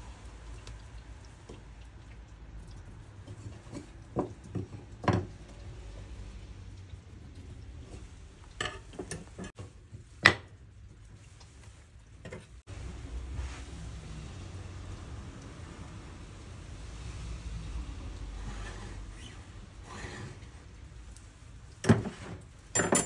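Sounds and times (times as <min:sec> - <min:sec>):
wooden workpieces and tools clattering: 0:03.4 - 0:05.4, 0:08.6 - 0:10.5, 0:21.8 - 0:23.0.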